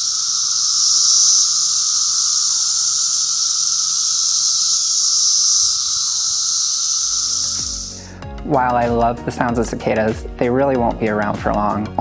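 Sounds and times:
lower cicada calls: 0.0s - 8.8s
cicadas buzzing: 0.0s - 12.0s.

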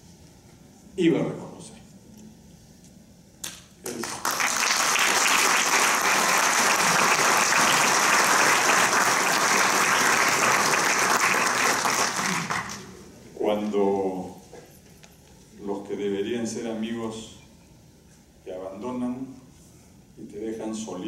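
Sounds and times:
audience applauding: 3.8s - 12.9s.

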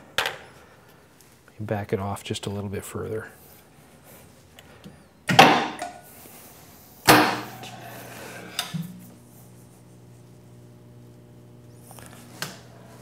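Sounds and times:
steady low hum: 6.0s - 13.0s.

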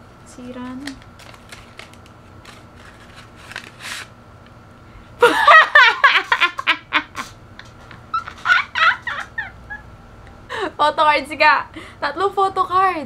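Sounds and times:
paper envelope rustling: 0.6s - 4.2s
woman laughing loudly: 5.2s - 9.9s.

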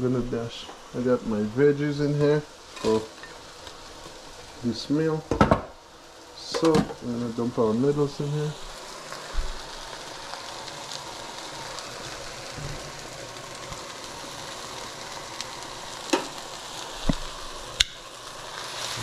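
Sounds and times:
stir-fry sizzling in pot: 0.0s - 19.0s
thump: 5.3s - 5.7s.

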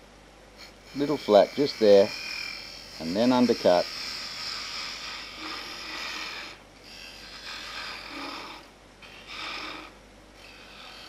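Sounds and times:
lathe humming: 0.6s - 6.6s
lathe tool scraping wood: 0.6s - 11.0s.

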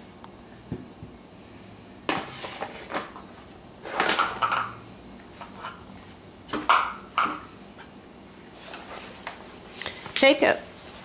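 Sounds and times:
plastic containers clattering: 2.1s - 4.8s.

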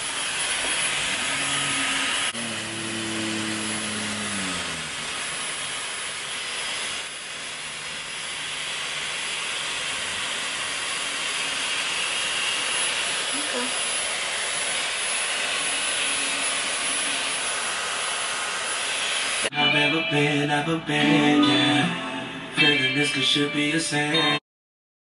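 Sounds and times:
hair styler blowing air: 0.0s - 19.5s.

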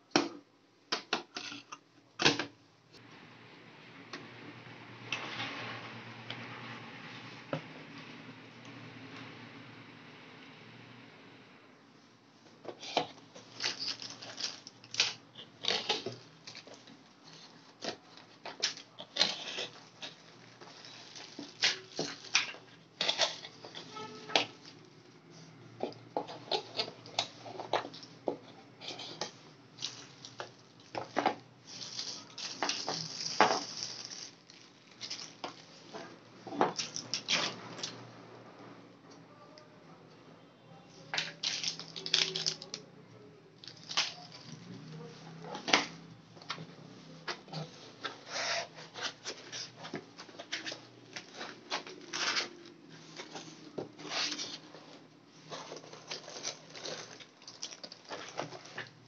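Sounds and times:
plastic bags crinkling: 13.2s - 24.9s, 29.8s - 36.0s, 41.1s - 42.8s, 43.6s - 46.0s, 49.1s - 54.6s, 55.4s - 59.0s.

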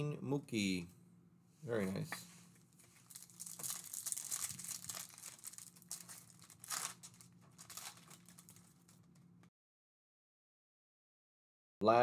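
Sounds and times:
foil wrapper crinkling and tearing: 2.9s - 9.2s.

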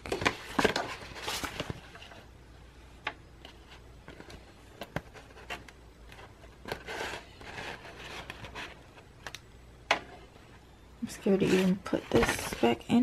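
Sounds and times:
paper rustling: 0.0s - 2.3s, 11.4s - 12.8s.

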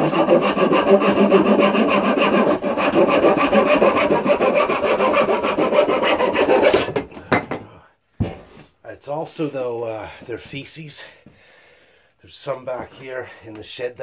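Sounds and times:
handsaw cutting wood: 0.0s - 7.0s.

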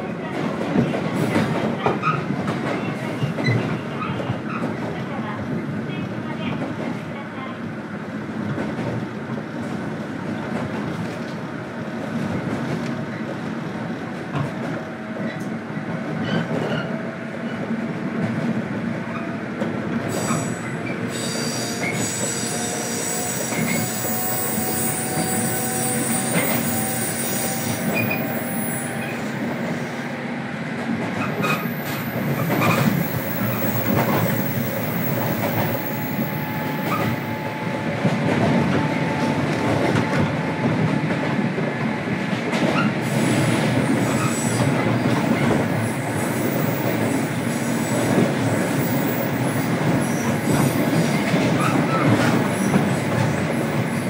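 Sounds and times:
train rolling and motor noise: 7.8s - 54.0s
high wheel squeal: 20.2s - 29.3s
rail joint clicks: 23.2s - 29.2s.

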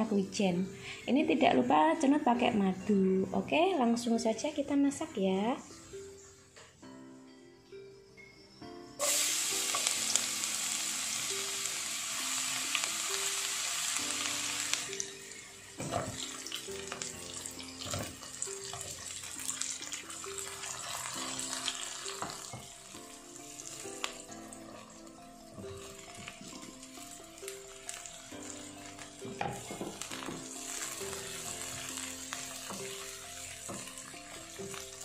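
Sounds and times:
light background music: 0.0s - 35.0s
garlic sizzling in hot oil: 9.0s - 35.0s
stirring knocks and scrapes on pan: 33.7s - 34.0s.

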